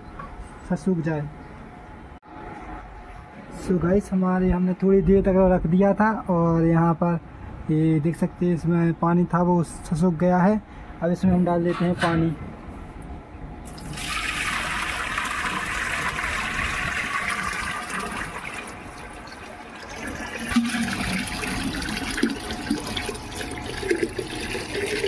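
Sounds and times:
water pouring into clay pot: 13.7 - 25.0.

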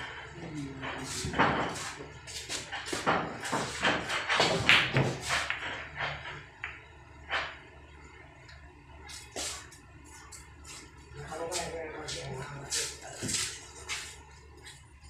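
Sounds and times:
pool balls clicking: 2.8 - 7.6.

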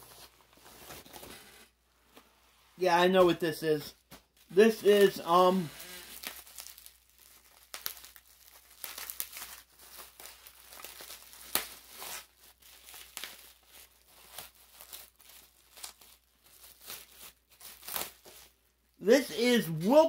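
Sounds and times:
packaging rustling and crackling: 5.8 - 18.6.

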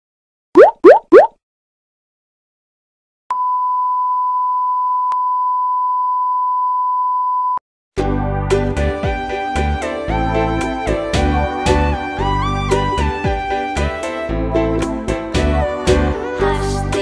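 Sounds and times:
instrumental background music: 8.0 - 17.0.

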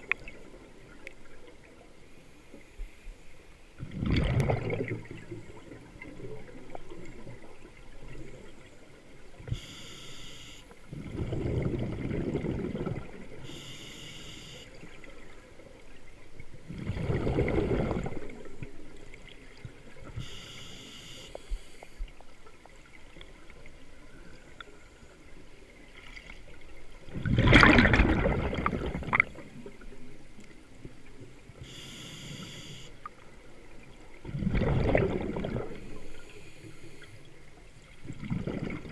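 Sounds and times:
exhaled bubbles bursting: 3.8 - 7.4, 10.9 - 13.3, 16.7 - 18.5, 27.1 - 29.5, 34.2 - 35.8, 38.0 - 38.9.

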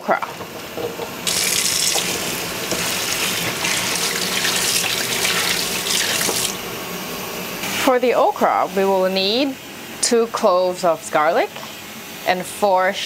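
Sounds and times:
tap water splashing into sink: 1.3 - 6.6.

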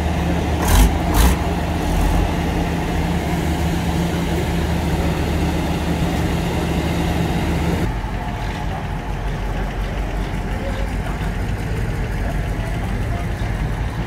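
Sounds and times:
lorry engine idling: 0.0 - 14.0.

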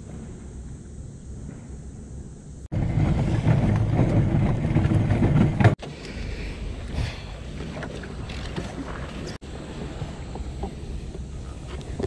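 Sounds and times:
plastic hull scraping over slipway: 2.7 - 5.8
water and wind noise: 2.7 - 12.0.

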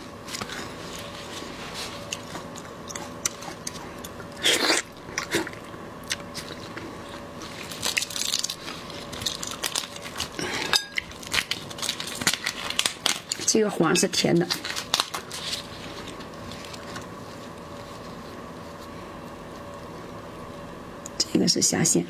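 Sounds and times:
prawn shell cracking: 7.4 - 13.5, 14.5 - 17.1.

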